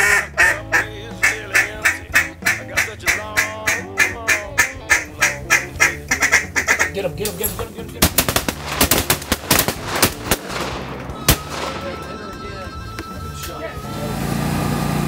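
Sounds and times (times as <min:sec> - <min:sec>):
duck quacks: 0:00.0 - 0:07.2
shotgun shots: 0:08.0 - 0:12.2.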